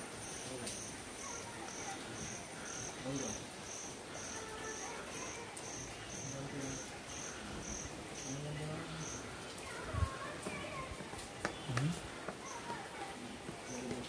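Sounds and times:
insect chirping: 0.0 - 10.4
faint voices: 0.0 - 14.0.

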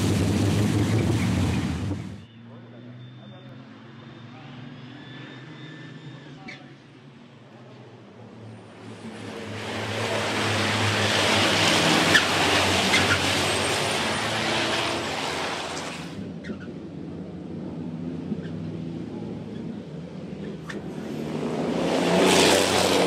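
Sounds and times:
race trucks passing at speed: 8.6 - 16.6, 20.4 - 23.0.

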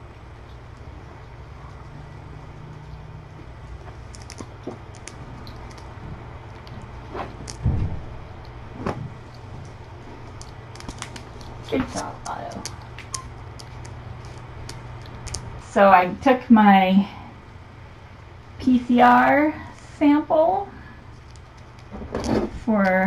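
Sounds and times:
low room hum: 0.0 - 23.0
dull thump: 7.6 - 8.1.

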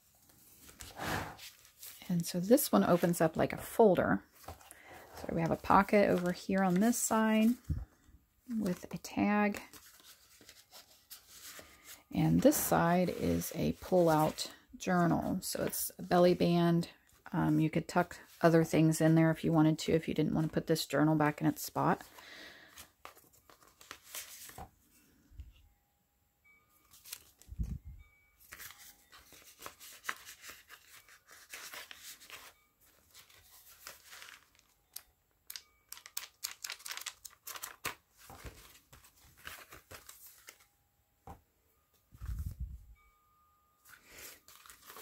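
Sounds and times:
paper rustling and crinkling: 0.0 - 7.9, 8.5 - 14.6, 22.0 - 24.8, 26.8 - 27.7, 28.4 - 40.7, 42.1 - 42.8, 43.8 - 45.0.

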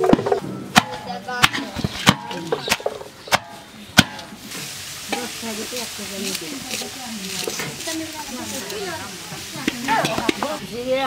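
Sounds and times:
voices chattering: 0.0 - 11.0
steady hiss: 2.5 - 11.0.

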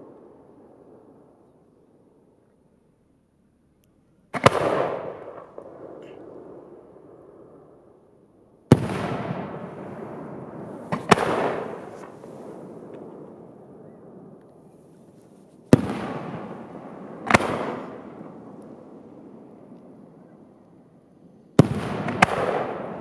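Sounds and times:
firework bangs with echo: 4.3 - 7.4, 8.7 - 14.3, 15.7 - 20.1, 21.6 - 23.0.

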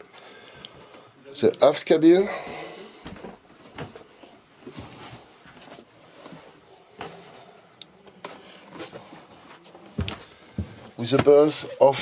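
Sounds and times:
soft knocks and clicks of footsteps: 3.0 - 12.0.

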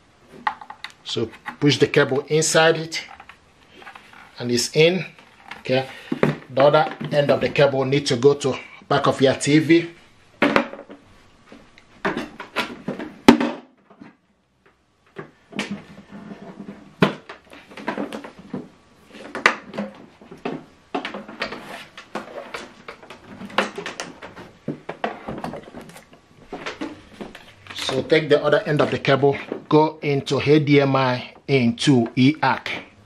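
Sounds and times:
cable and tv handling knocks: 5.4 - 7.6, 16.5 - 28.1.

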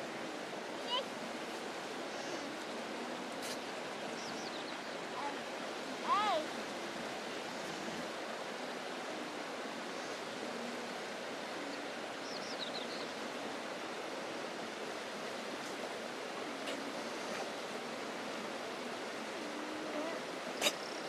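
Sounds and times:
steady rushing outdoor noise: 0.0 - 21.0
alpacas humming: 19.2 - 20.8.

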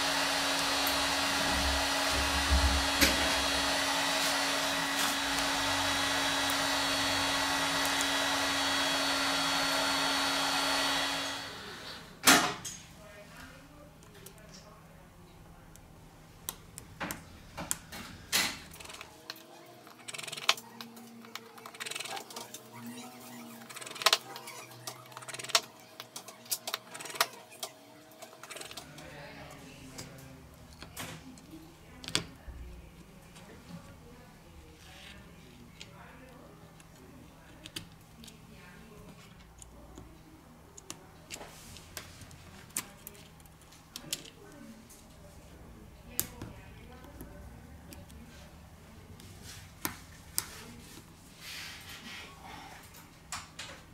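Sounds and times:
heat gun blowing air: 0.0 - 12.2.

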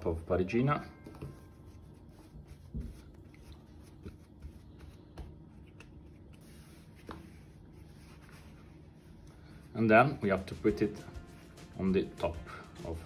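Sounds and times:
hands patting dough: 1.1 - 8.6.

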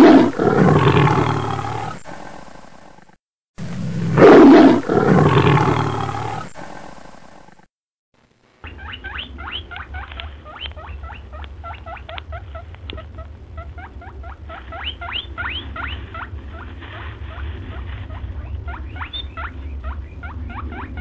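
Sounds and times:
steady low rumble: 8.2 - 21.0
animal squeaky chirps: 8.6 - 16.7, 18.1 - 21.0.

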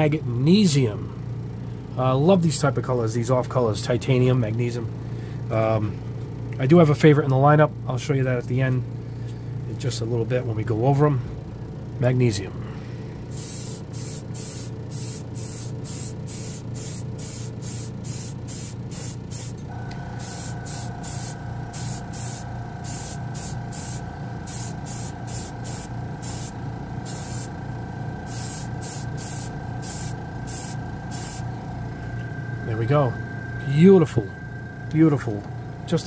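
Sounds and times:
spray booth fan hum: 0.0 - 36.0
steady whine: 11.9 - 36.0
airbrush hissing bursts: 13.3 - 19.6, 20.2 - 27.6, 28.3 - 31.5.

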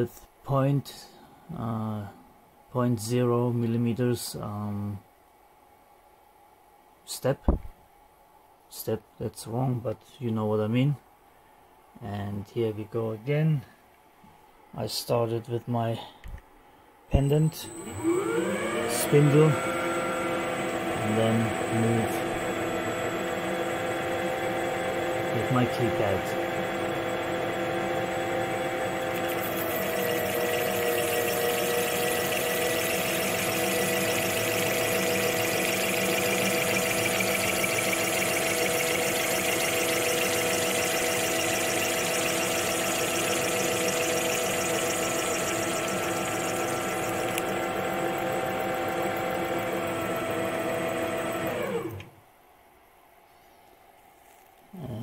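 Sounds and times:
lathe spindle whine: 17.2 - 52.1.

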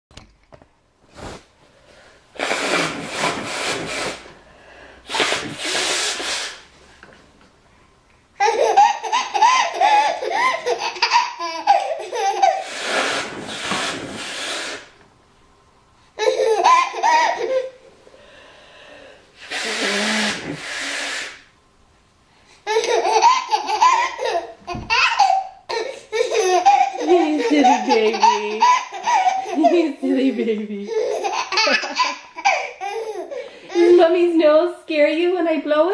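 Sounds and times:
woman blowing her nose: 2.3 - 6.7, 12.4 - 15.0, 19.4 - 21.5, 26.6 - 29.9
baby laughing: 8.4 - 12.8, 16.2 - 17.8, 22.6 - 34.1.

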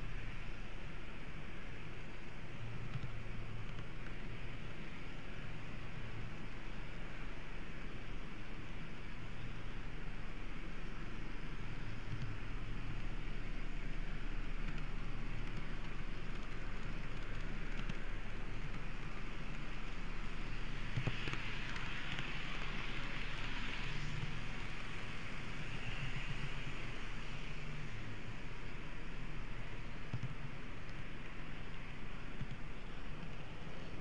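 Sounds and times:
wheels rattling on rail: 0.0 - 34.0
model train whirring: 12.8 - 34.0.

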